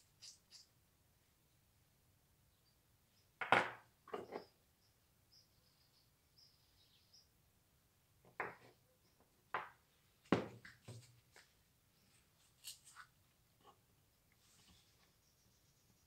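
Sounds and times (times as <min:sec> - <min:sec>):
tools knocking on wooden workbench: 0:10.3 - 0:10.6.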